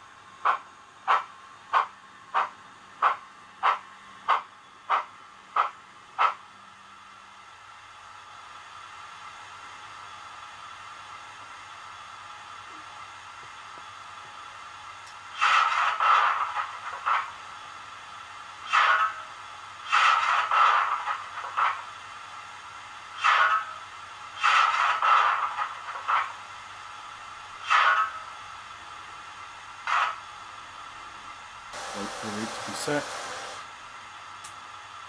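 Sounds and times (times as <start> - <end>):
bursts of hissing steam: 31.8 - 33.6.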